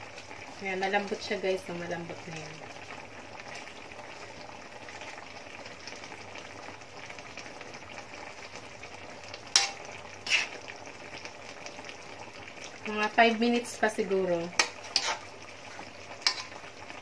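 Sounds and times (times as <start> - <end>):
coconut milk bubbling: 0.0 - 17.0.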